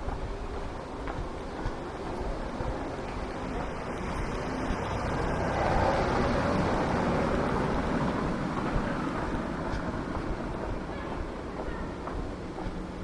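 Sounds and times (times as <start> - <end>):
vehicle passing by: 2.4 - 10.9.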